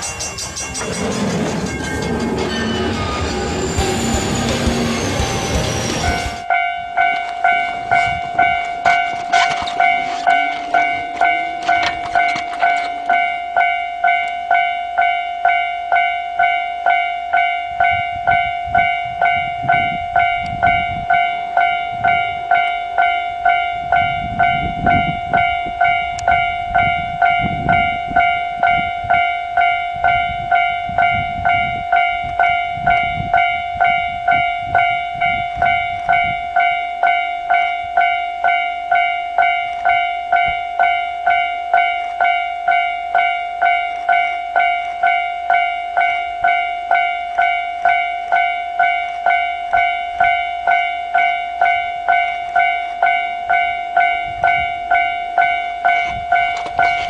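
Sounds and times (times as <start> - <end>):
train rumble: 0.0 - 14.5, 52.8 - 57.0
level-crossing warning bell: 0.0 - 57.0.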